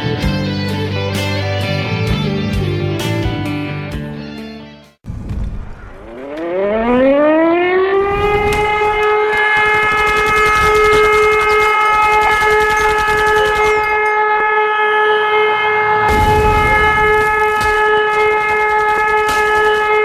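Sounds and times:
air-raid siren winding up: 6.0s - 20.0s
dense crackle of clicks: 8.5s - 14.2s, 16.2s - 20.0s.

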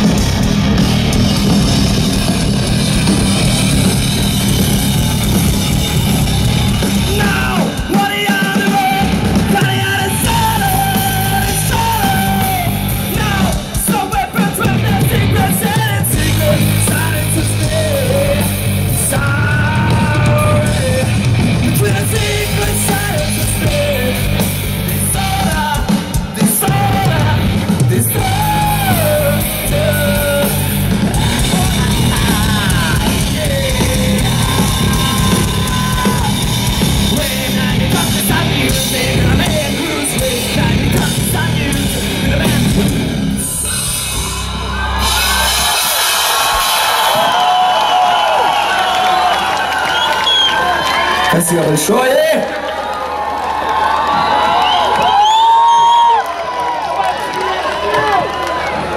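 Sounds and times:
singer belting: 0.0s - 45.6s
rock band playing live: 0.0s - 52.7s
crowd cheering: 0.0s - 58.9s.

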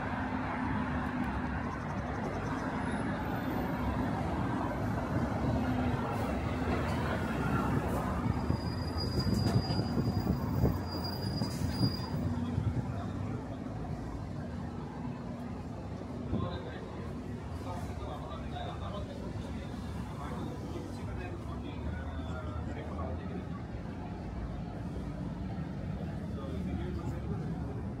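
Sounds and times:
heavy vehicle rumble: 0.0s - 28.0s
high-pitched metallic squeal: 8.2s - 12.3s.

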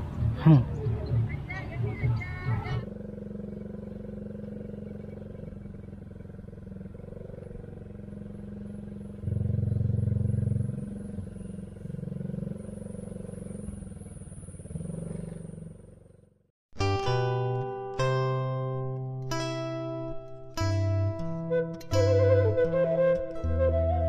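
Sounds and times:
small motorcycle engine running: 0.0s - 16.4s.

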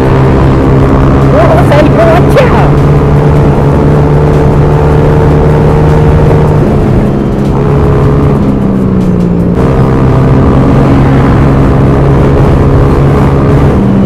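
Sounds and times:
scooter engine cruising: 0.0s - 14.0s.

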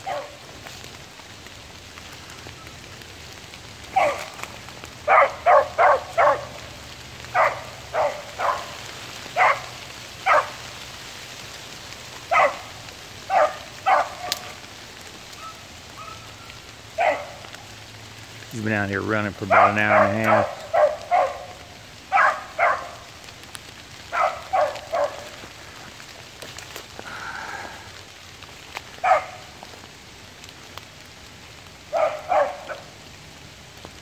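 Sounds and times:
dog barking: 0.0s - 0.4s, 3.9s - 4.4s, 5.0s - 6.6s, 7.3s - 8.8s, 9.4s - 10.6s, 12.3s - 14.6s, 15.4s - 16.3s, 16.9s - 17.4s, 19.4s - 23.1s, 24.1s - 25.4s, 29.0s - 29.5s, 31.9s - 33.0s
rain on leaves: 0.0s - 34.0s.

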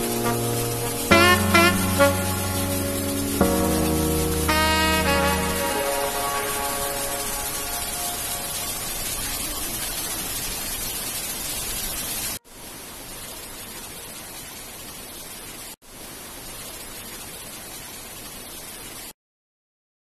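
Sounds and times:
waterfall rushing: 0.0s - 15.6s.

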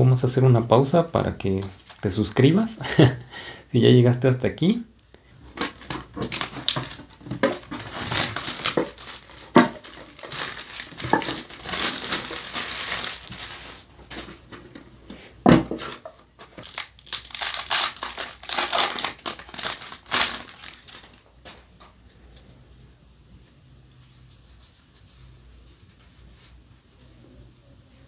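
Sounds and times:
plastic wrap crackling: 0.6s - 3.2s, 5.4s - 14.3s, 15.9s - 21.3s.

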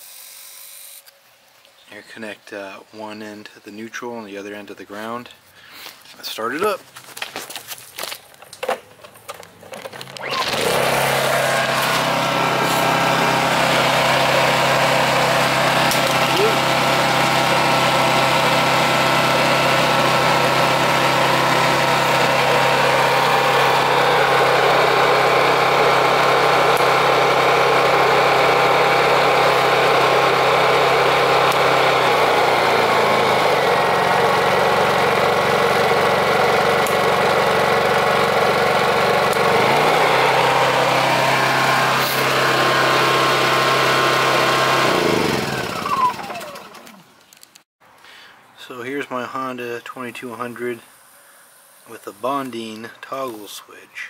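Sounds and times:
generator engine running: 9.3s - 47.1s.

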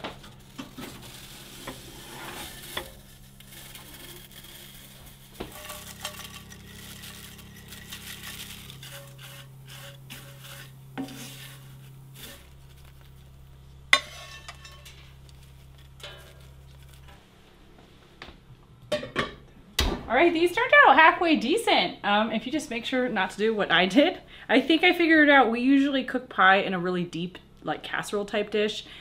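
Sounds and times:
dishes and utensils clattering: 14.0s - 15.2s.

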